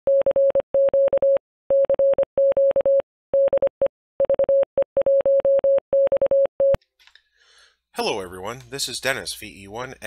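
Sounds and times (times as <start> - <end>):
morse code beeps: 0.1 - 6.8.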